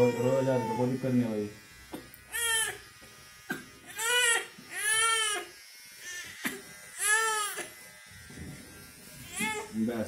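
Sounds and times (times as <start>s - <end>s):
infant crying: 0.0s - 1.0s, 2.3s - 2.8s, 3.9s - 7.8s, 9.2s - 9.7s.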